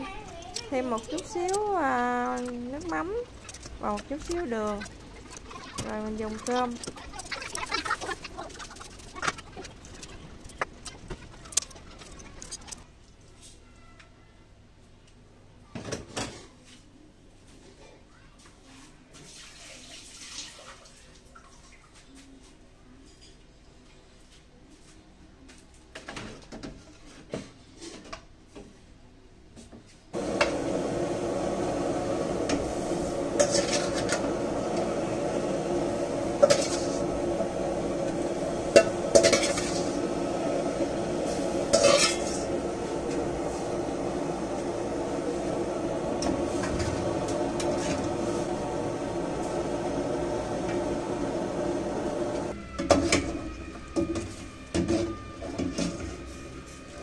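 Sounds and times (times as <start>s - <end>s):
gas burner rushing: 0.0s - 12.8s, 30.2s - 57.0s
metal pots clattering: 33.3s - 34.4s, 36.3s - 37.3s, 37.9s - 40.3s, 41.3s - 43.2s.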